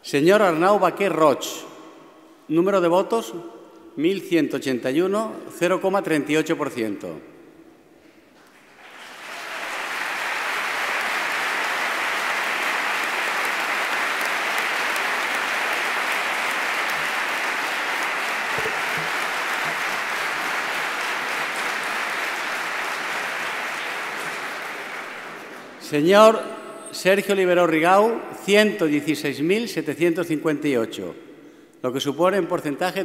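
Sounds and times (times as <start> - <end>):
audience applauding: 8.5 - 25.8.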